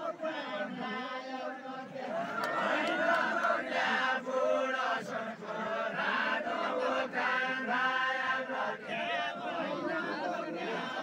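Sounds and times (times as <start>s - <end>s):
men singing together: 0.0s - 11.0s.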